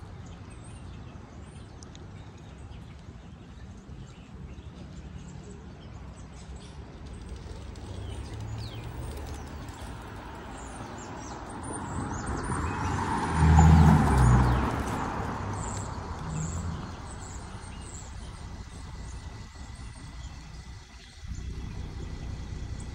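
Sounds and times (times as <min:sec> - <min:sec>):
small birds chirping: 0:00.0 - 0:22.9
car passing: 0:07.4 - 0:22.9.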